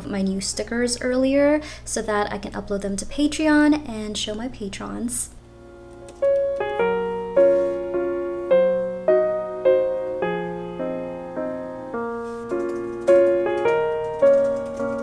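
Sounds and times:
gentle keyboard melody: 0:05.6 - 0:15.0.

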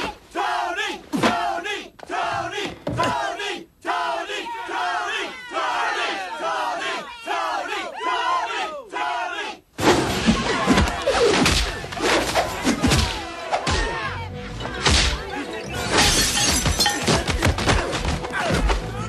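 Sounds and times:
fighters shouting: 0:00.0 - 0:09.6.

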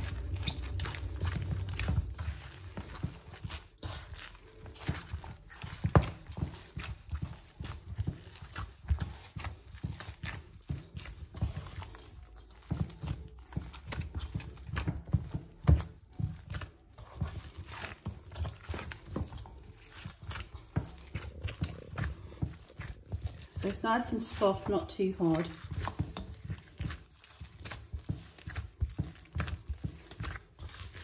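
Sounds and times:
hands kneading dough in bowl: 0:00.0 - 0:31.0.

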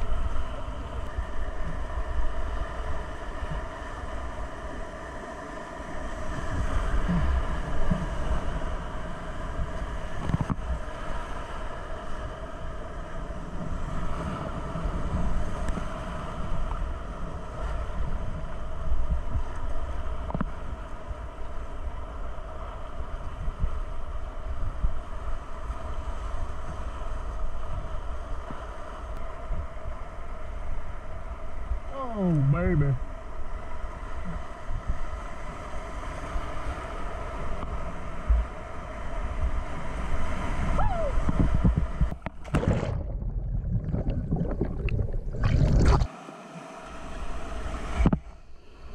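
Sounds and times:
wind noise on microphone: 0:06.1 - 0:28.6, 0:34.2 - 0:46.1.

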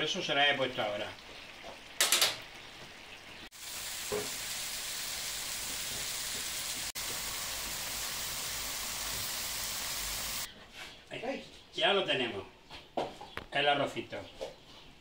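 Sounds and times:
food bubbling and sizzling in pan: 0:00.2 - 0:10.5.

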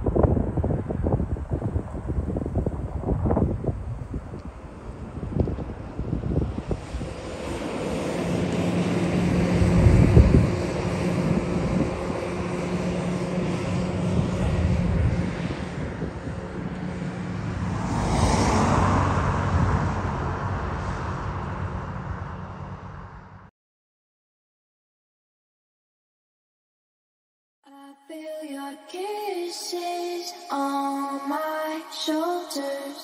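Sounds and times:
broad rushing noise: 0:00.0 - 0:23.2
wheeled loader diesel engine: 0:04.6 - 0:17.8.

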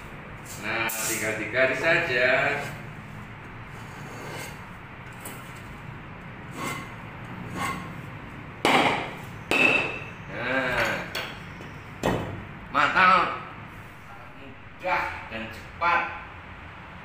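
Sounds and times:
blade scraping concrete block: 0:03.7 - 0:04.7, 0:06.5 - 0:08.0
crunching knocks of block cracking: 0:08.6 - 0:09.9.

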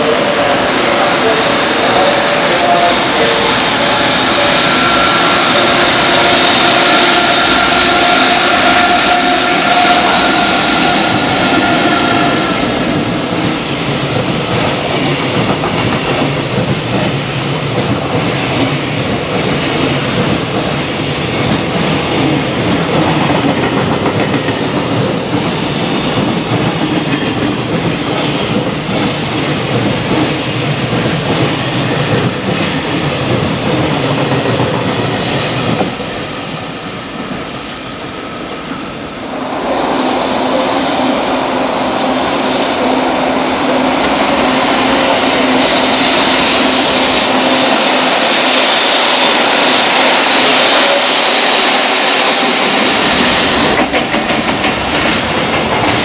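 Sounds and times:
electric locomotive whine: 0:00.0 - 0:56.0
train wheels clacking over rail joints: 0:09.7 - 0:36.1, 0:49.2 - 0:56.0.

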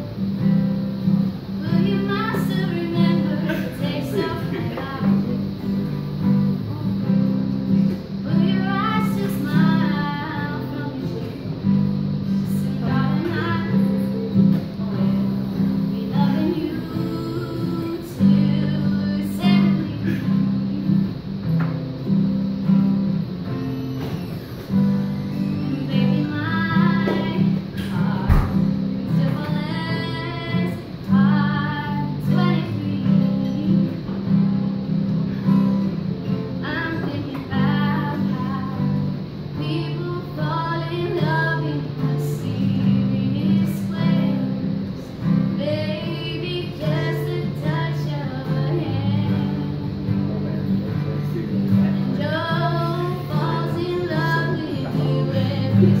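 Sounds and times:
acoustic guitar strumming: 0:00.0 - 0:56.0
people singing: 0:03.0 - 0:05.4.

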